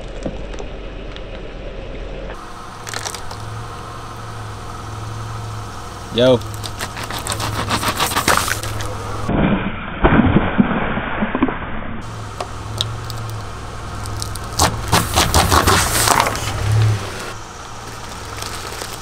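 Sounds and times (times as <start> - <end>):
car engine idling: 0.0 - 9.3, 12.0 - 19.0
plastic bottles crackling under tyre: 2.8 - 3.5, 6.4 - 9.1, 12.3 - 19.0.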